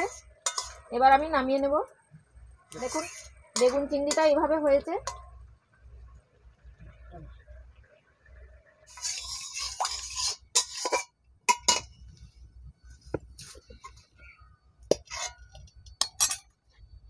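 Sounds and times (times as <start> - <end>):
utensils scraping metal dish: 0.0 - 0.9, 2.7 - 4.4, 8.9 - 11.9, 14.9 - 16.5
metal dishes clinking: 0.0 - 1.3, 2.8 - 5.3, 8.9 - 12.0, 14.9 - 16.5.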